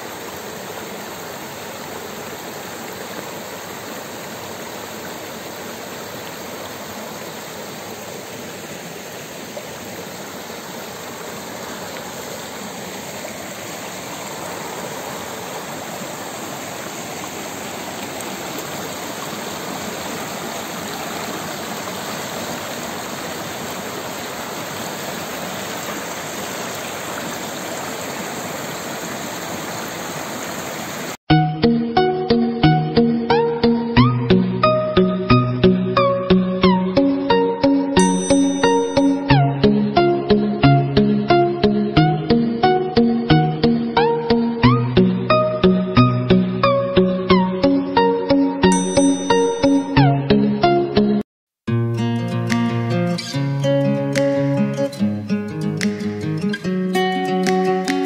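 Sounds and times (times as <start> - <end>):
stream rushing over rocks: 0.0 - 31.2.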